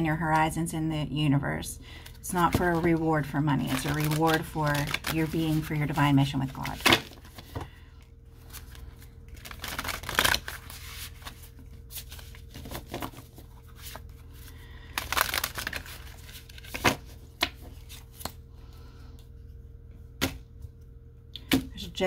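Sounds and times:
card deck rustling: 0:02.3 - 0:07.7, 0:08.4 - 0:18.4
cards riffling and slapping: 0:08.4 - 0:18.4.

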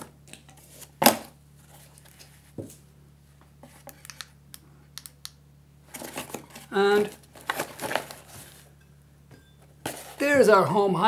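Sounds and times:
small sharp clicks: 0:03.9 - 0:05.4
items lifted from cardboard box: 0:05.9 - 0:08.7, 0:09.8 - 0:10.4.

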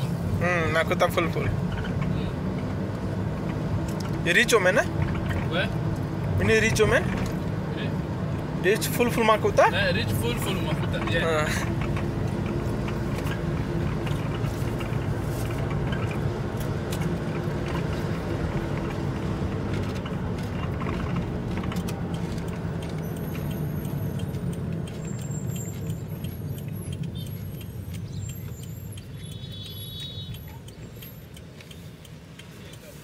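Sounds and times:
car engine and tyre rumble: 0:00.0 - 0:33.0.

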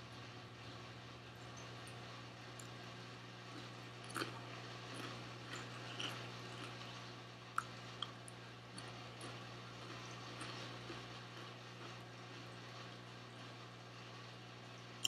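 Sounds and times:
chewing crunchy chips: 0:03.4 - 0:12.1.

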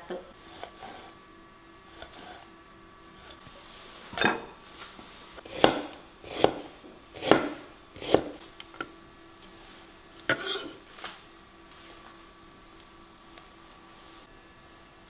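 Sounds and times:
knife chopping on wooden board: 0:05.4 - 0:08.4.

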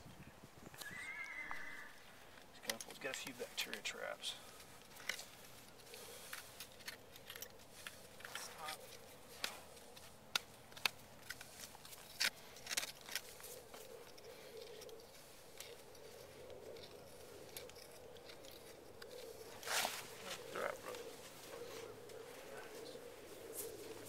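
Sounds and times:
farrier clicks and scrapes on hoof: 0:04.5 - 0:22.6.

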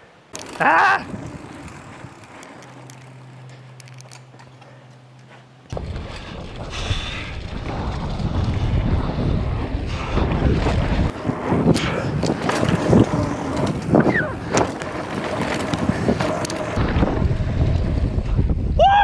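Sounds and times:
wind rushing over microphone: 0:05.8 - 0:19.0.

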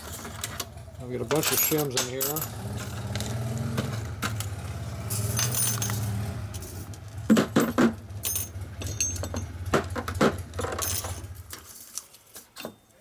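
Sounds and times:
metal washers clinking on metal: 0:01.3 - 0:03.2, 0:05.1 - 0:13.0.

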